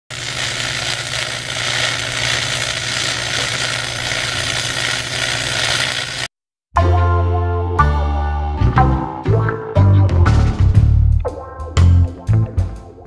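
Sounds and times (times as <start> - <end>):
welding arc crackling: 0.0 - 6.3.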